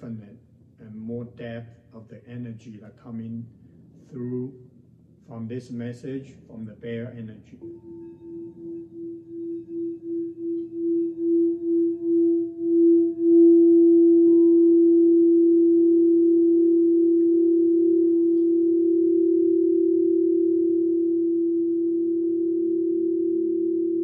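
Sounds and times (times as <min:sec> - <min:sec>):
singing bowl tone: 0:07.0 - 0:24.0.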